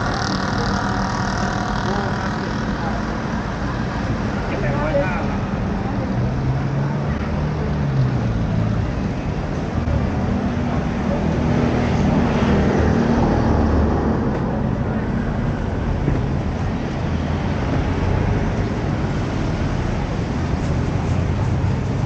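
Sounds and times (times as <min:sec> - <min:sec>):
faint voices: 0:00.0 - 0:22.0
road traffic passing: 0:00.0 - 0:22.0.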